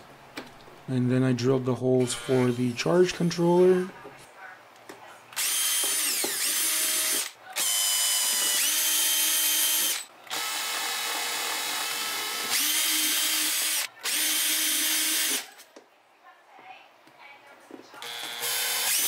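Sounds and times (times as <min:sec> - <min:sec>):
power drill motor whining: 0:02.0 - 0:02.7, 0:05.4 - 0:15.5, 0:18.0 - 0:19.0.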